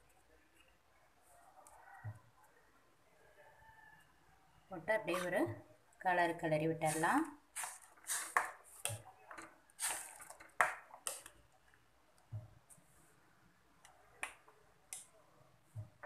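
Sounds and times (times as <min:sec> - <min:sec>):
spoon scraping steel pot: 0:06.8 - 0:11.2.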